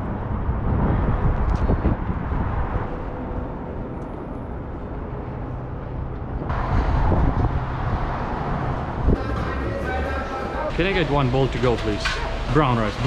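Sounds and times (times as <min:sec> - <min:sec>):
wind on microphone: 0:00.0 - 0:05.3, 0:06.2 - 0:09.2
traffic rumble: 0:00.0 - 0:13.0.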